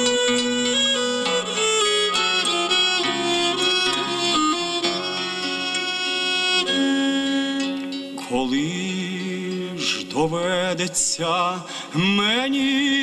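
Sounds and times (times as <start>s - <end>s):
violin playing held notes: 0.0s - 8.5s
plucked string accompaniment: 0.0s - 13.0s.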